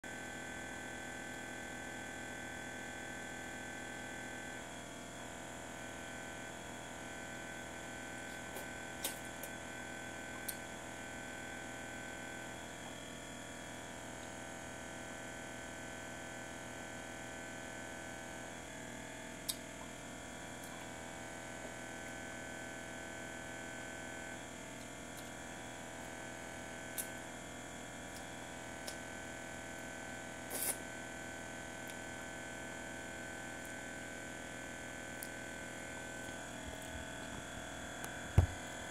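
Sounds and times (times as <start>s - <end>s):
aquarium equipment hum: 0.0s - 38.9s.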